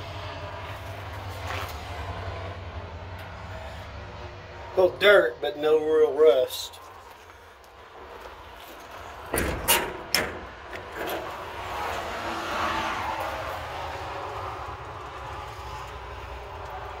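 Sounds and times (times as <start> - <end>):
vehicle passing: 0.0 - 9.3, 10.4 - 17.0
metal compartment door click: 9.3 - 11.3.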